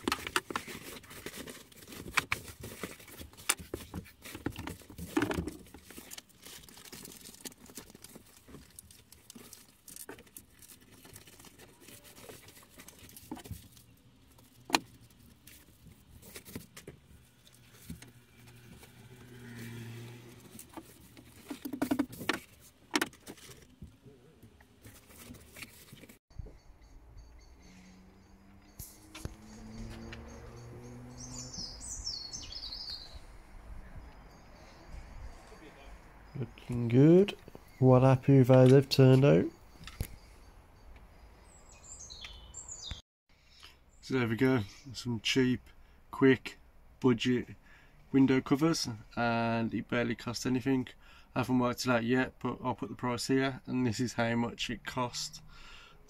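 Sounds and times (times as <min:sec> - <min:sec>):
foil insulation sheet crinkling: 0:00.0 - 0:18.6.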